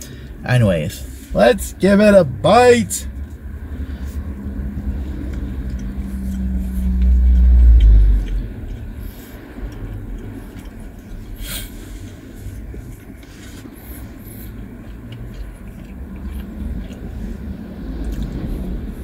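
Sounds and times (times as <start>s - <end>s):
truck driving past: 0.0s - 10.6s.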